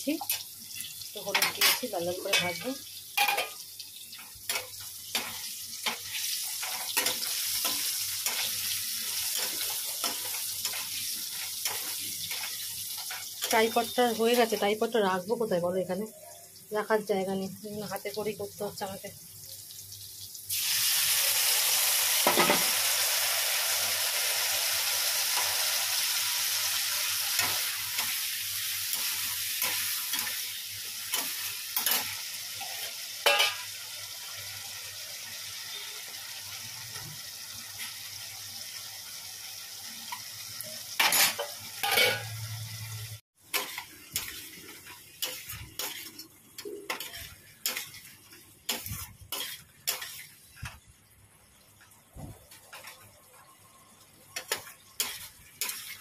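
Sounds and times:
potatoes sizzling in hot oil: 0.0s - 56.0s
metal spatula scraping a pan: 41.0s - 42.4s, 45.2s - 50.4s, 54.4s - 56.0s.

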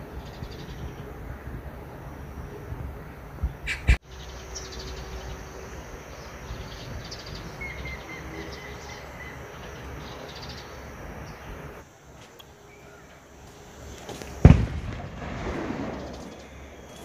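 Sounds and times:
birds chirping: 0.0s - 17.0s
insects calling: 0.0s - 17.0s
steady low rumble: 14.4s - 16.8s.

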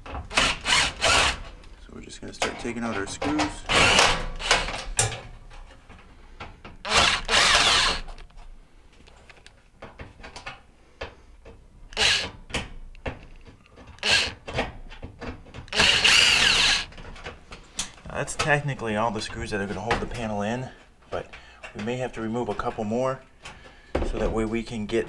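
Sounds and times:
cordless drill motor bursts: 0.3s - 1.5s, 3.7s - 4.8s, 6.8s - 8.2s, 11.9s - 12.3s, 14.0s - 14.5s, 15.7s - 16.9s.

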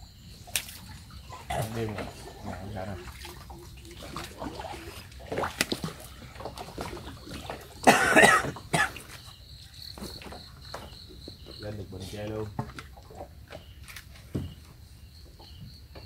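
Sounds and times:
person coughing: 7.8s - 9.0s.

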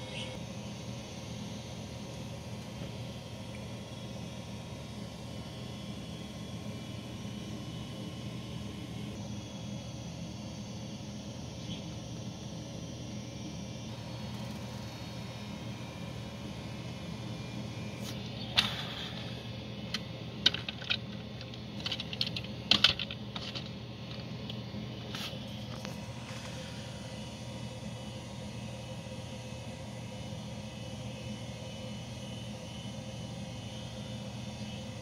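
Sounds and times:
steady low hum: 0.0s - 35.0s
plastic toys clicking and tapping: 20.4s - 24.2s.

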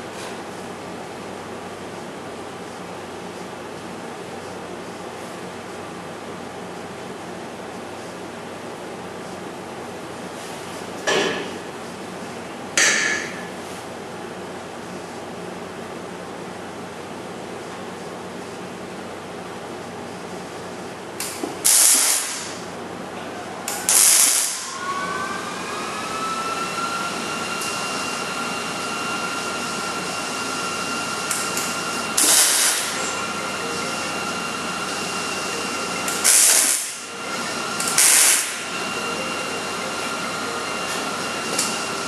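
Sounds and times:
steady high whine: 19.8s - 42.0s
welding arc bursts: 21.6s - 22.6s, 23.7s - 24.8s, 31.3s - 33.2s, 36.0s - 38.7s.

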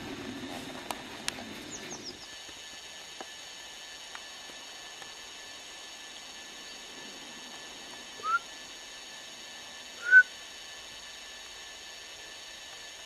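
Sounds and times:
background hiss: 0.0s - 13.0s
short rising whistles: 8.2s - 8.5s, 10.0s - 10.3s.

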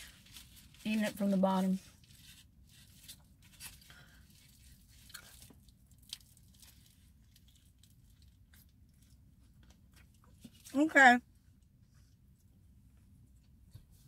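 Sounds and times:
foil wrapper crinkling: 0.0s - 9.2s.

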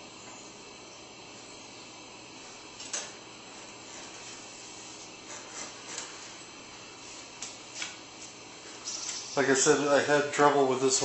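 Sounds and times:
heater mechanism click: 2.7s - 3.3s, 7.2s - 9.8s.

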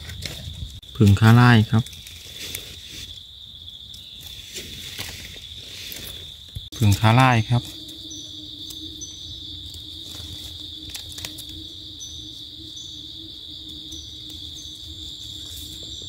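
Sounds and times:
insect chirps: 0.0s - 16.0s
insect chorus buzzing: 0.0s - 16.0s.

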